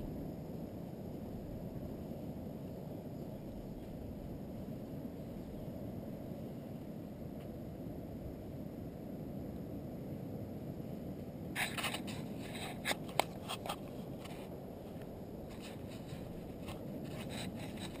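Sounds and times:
steady low rumble: 0.0s - 18.0s
short scrapes and clicks: 11.6s - 14.5s, 15.5s - 18.0s.

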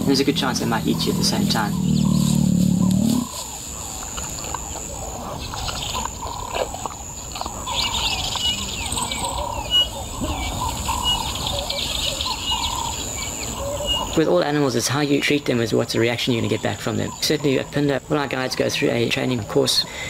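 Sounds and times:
birds chirping and calling: 0.0s - 20.0s.

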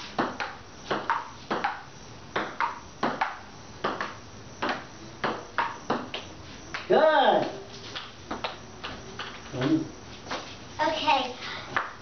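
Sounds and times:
ping-pong ball clicking: 0.2s - 1.8s, 2.4s - 6.2s.

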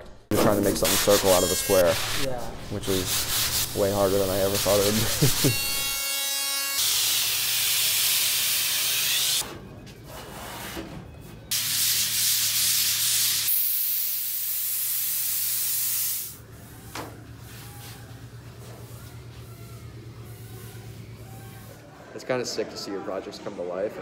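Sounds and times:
sanding pad scraping foam: 0.6s - 5.8s.

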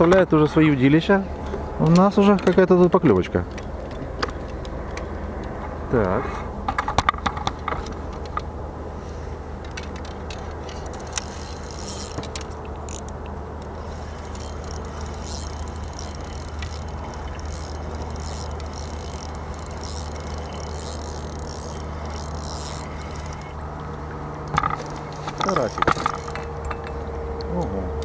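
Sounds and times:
steady low hum: 7.6s - 28.0s
fishing reel ticking rasp: 10.3s - 23.6s, 24.4s - 26.8s.

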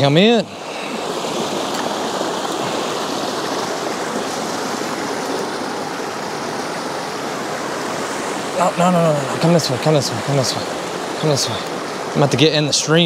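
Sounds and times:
stream rushing: 0.0s - 13.0s.

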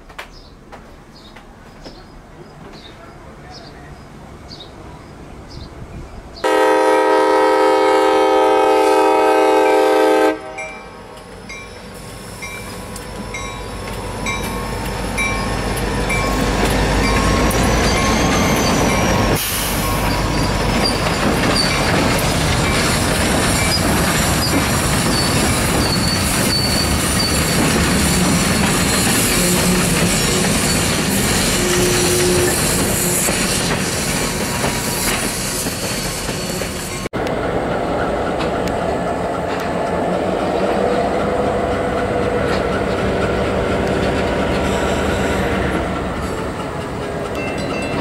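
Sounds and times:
train rumbling by: 0.0s - 48.0s
locomotive air horn blast: 6.4s - 10.8s, 29.3s - 30.5s, 31.1s - 33.4s
train wheels squealing: 11.5s - 37.1s, 44.2s - 48.0s.

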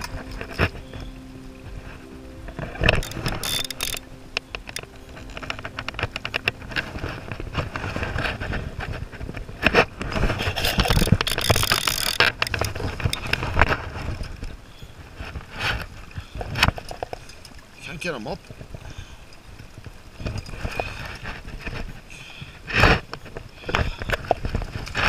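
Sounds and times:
wind buffeting microphone: 0.0s - 17.0s
flowing river water: 0.0s - 25.0s
camera rubbing against clothing: 6.6s - 14.2s.

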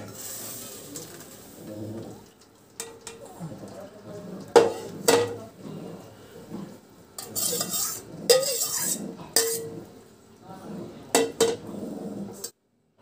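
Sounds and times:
rice scraping rustles: 0.0s - 1.8s.

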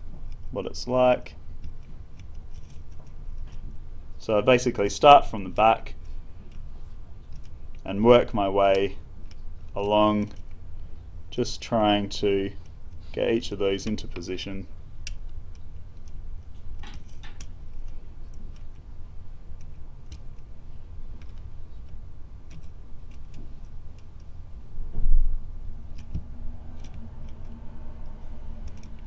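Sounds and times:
lock pick metallic clicks and scrapes: 1.6s - 3.6s, 15.0s - 18.8s, 21.1s - 24.4s, 25.9s - 29.0s.

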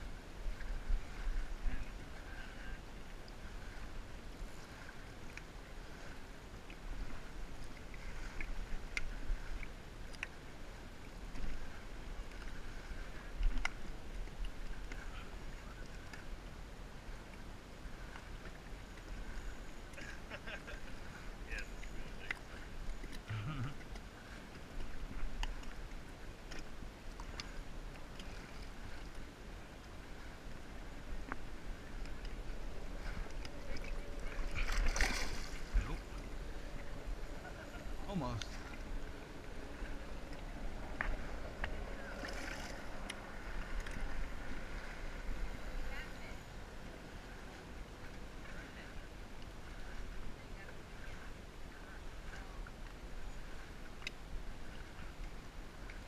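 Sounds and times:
wind rumble on microphone: 0.0s - 9.9s
water lapping against hull: 0.0s - 56.0s
steady low rumble: 24.4s - 56.0s
hand moving in water: 31.3s - 38.9s
splashes and knocks: 33.7s - 36.0s.

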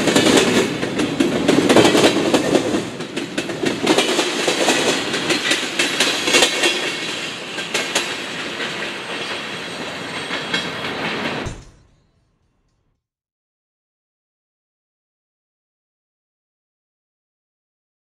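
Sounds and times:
train wheels clacking over rail joints: 0.0s - 11.9s.

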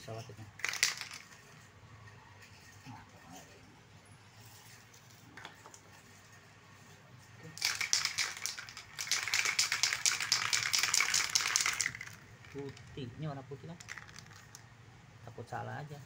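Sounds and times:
spray can ball rattling: 0.6s - 1.6s, 7.5s - 13.1s, 13.7s - 14.7s.

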